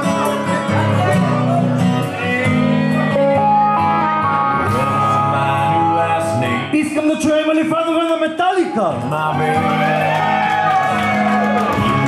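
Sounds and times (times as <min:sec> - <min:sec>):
guitar-led song: 0:00.0 - 0:12.0.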